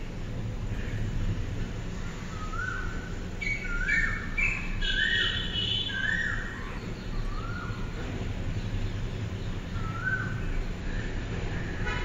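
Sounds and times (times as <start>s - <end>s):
bird high chirps: 2.2s - 8.1s.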